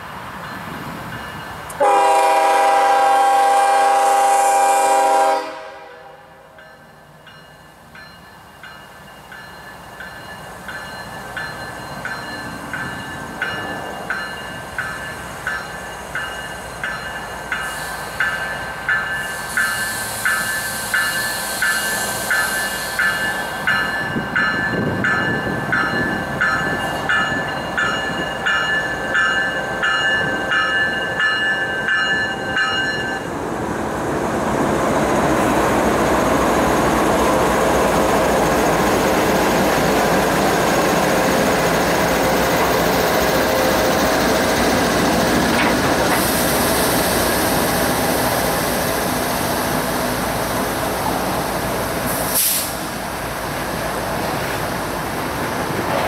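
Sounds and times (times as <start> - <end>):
railroad crossing bell dinging: 0.0 - 3.4, 6.4 - 33.3
freight train wheels rumbling: 0.0 - 56.0
brief high-pitched hiss: 52.1 - 53.0.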